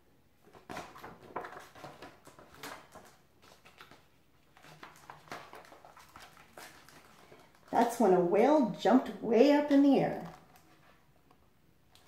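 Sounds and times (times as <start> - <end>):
book pages turning: 0.4 - 8.0, 10.2 - 12.0.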